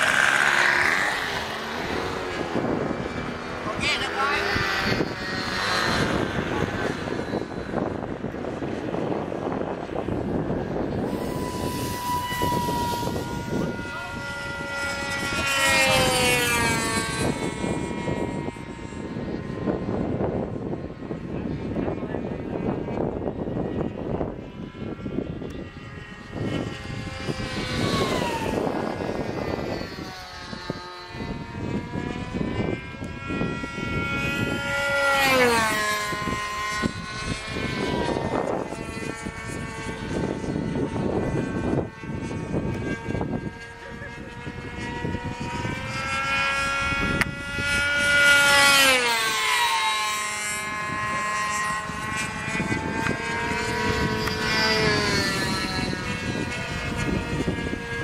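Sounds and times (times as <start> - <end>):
model airplane motor whining: 0.0 - 58.0.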